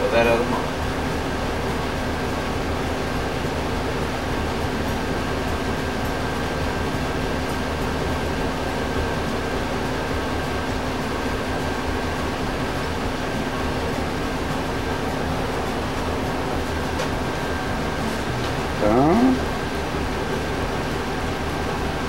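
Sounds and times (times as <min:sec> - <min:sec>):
fan humming and whirring: 0:00.0 - 0:22.0.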